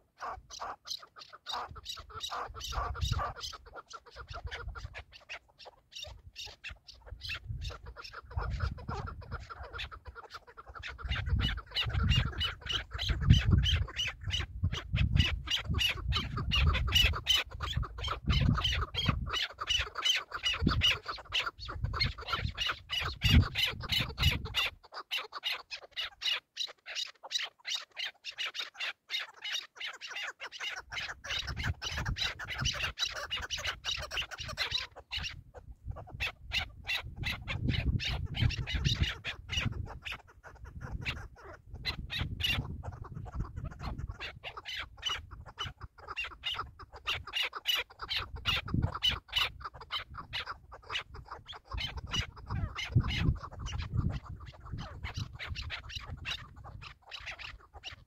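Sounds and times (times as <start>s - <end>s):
partridges chucking calls: 0.0s - 58.0s.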